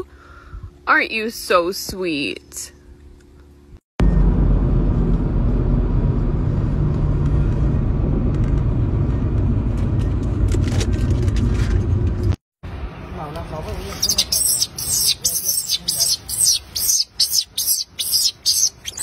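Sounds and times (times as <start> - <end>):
car cabin road rumble: 4.0 - 14.0.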